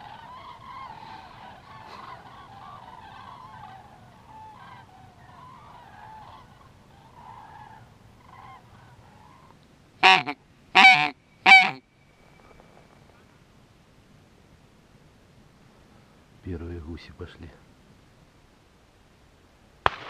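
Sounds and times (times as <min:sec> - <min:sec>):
distant geese honking: 0:00.0 - 0:11.8
loud close goose honks: 0:10.0 - 0:11.8.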